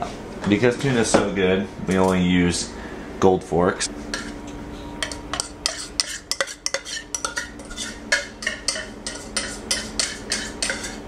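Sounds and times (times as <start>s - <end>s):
fork clinking against ceramic bowl: 5.0s - 11.0s.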